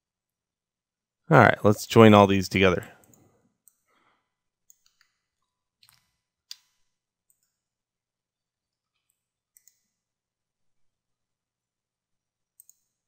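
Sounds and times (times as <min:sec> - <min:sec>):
computer mouse clicks: 0:03.0 - 0:03.9, 0:04.6 - 0:07.6, 0:08.9 - 0:10.0, 0:12.6 - 0:13.0.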